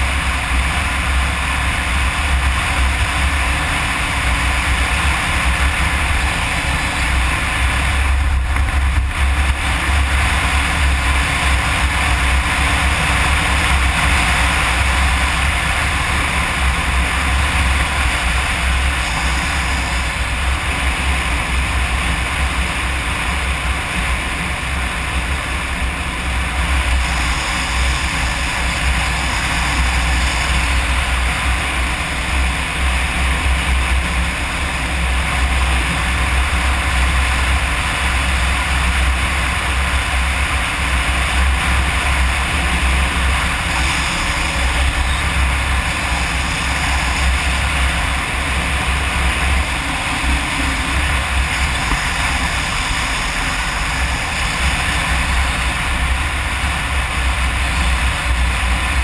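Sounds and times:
motorcycle engine running: 0:00.0 - 0:59.0
wind buffeting microphone: 0:00.0 - 0:59.0.

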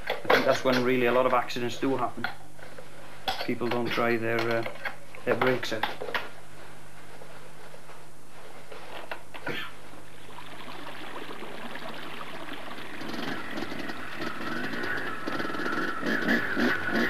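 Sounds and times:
motorcycle engine: 0:12.4 - 0:17.0.

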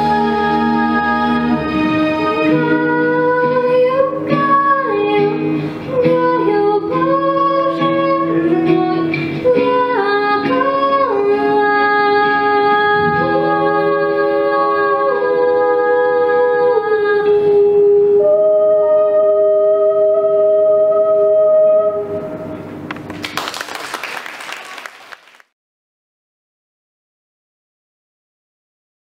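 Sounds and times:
female voices singing a duet: 0:00.0 - 0:21.8.

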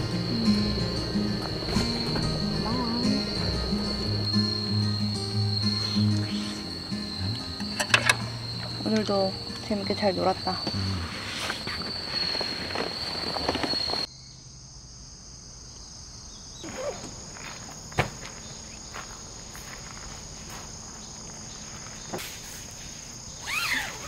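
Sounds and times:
insects trilling: 0:00.0 - 0:24.0.

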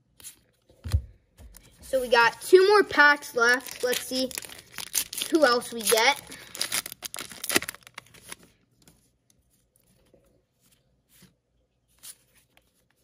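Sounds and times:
foil wrapper crinkling: 0:03.4 - 0:08.5.

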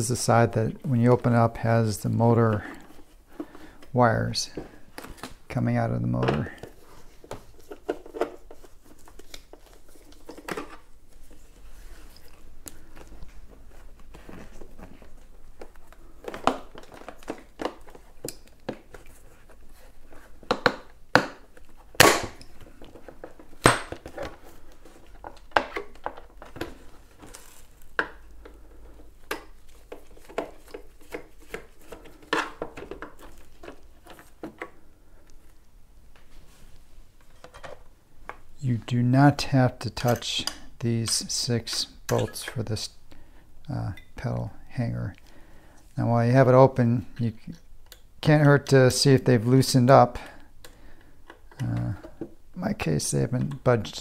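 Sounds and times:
hands handling plastic shell: 0:06.2 - 0:36.3.

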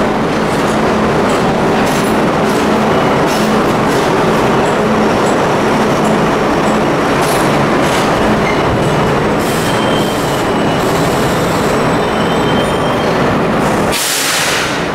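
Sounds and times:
train wheels rumbling on rail: 0:00.0 - 0:14.9
faint high wheel squeal: 0:09.4 - 0:13.2.

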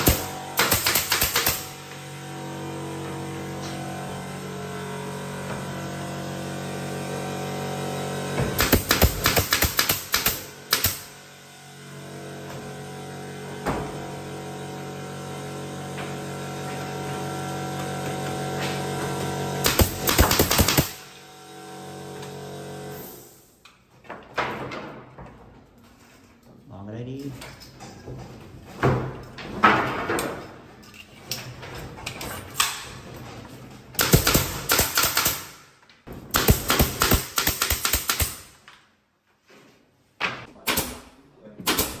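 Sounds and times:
nail gun firing: 0:00.0 - 0:01.9, 0:08.4 - 0:11.1, 0:19.6 - 0:21.2, 0:34.0 - 0:38.8, 0:40.5 - 0:42.0.

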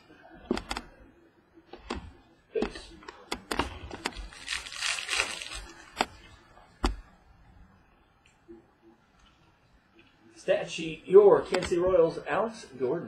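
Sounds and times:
foil wrapper crinkling: 0:04.1 - 0:06.0.

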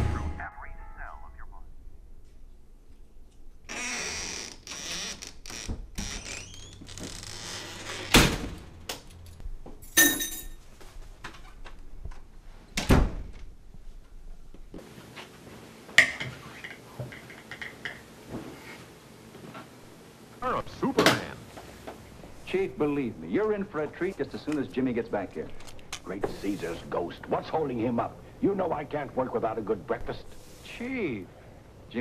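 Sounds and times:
keys dropped into glass bowl: 0:09.8 - 0:10.6.

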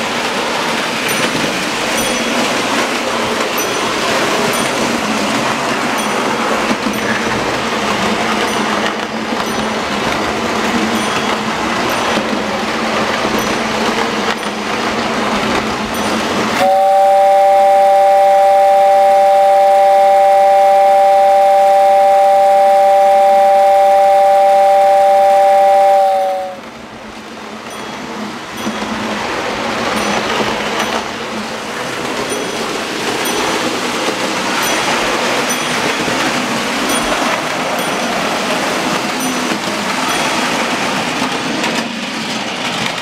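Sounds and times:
toy train running rattle: 0:00.0 - 0:16.6, 0:27.6 - 0:43.0
toy train whistle chord: 0:16.0 - 0:26.7.

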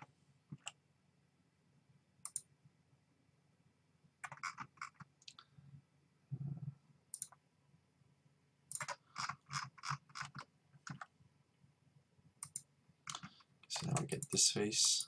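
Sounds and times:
computer mouse clicking: 0:02.2 - 0:02.5, 0:04.2 - 0:05.5, 0:07.1 - 0:07.4, 0:08.7 - 0:11.1, 0:12.4 - 0:14.3.

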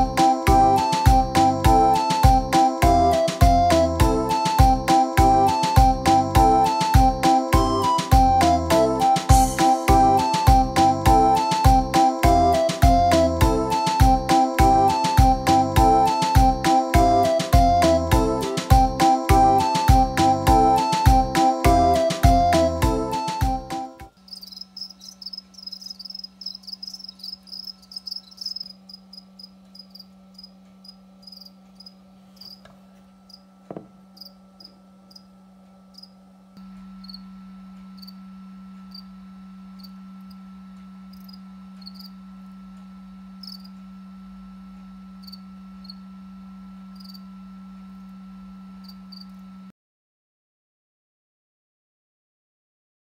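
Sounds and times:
steady low hum: 0:00.0 - 0:49.7
crickets chirping: 0:24.1 - 0:32.6, 0:33.3 - 0:35.3, 0:35.9 - 0:36.2, 0:37.0 - 0:37.4, 0:38.0 - 0:38.2, 0:38.9 - 0:39.2, 0:39.8 - 0:40.4, 0:41.1 - 0:42.2, 0:43.4 - 0:43.8, 0:45.2 - 0:46.1, 0:46.9 - 0:47.3, 0:48.8 - 0:49.4.

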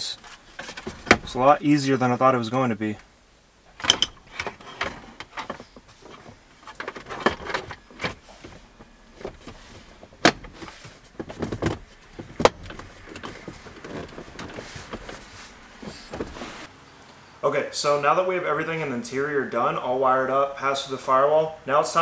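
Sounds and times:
plastic trim rustling and rattling: 0:03.8 - 0:16.7.

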